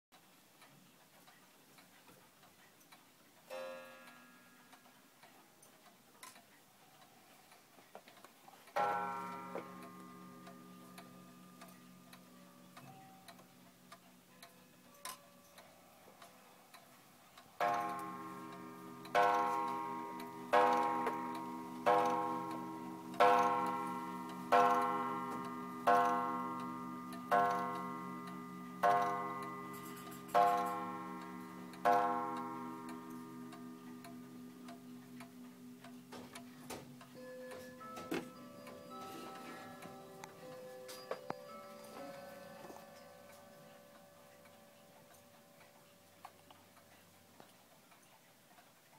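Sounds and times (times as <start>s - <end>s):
wall clock ticking: 0.2s - 48.9s
clock striking: 8.7s - 14.5s, 17.6s - 45.7s.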